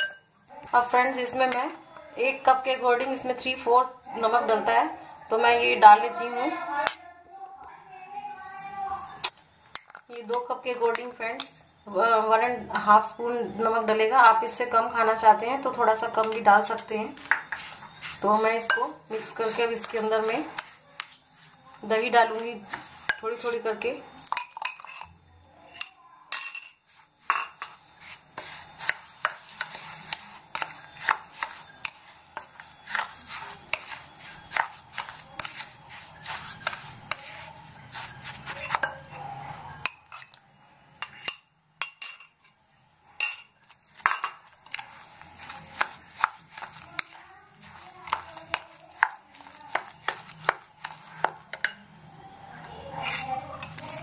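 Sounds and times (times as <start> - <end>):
spatula scraping batter: 12.3 - 23.9, 26.8 - 40.4, 43.6 - 52.3, 52.9 - 54.0.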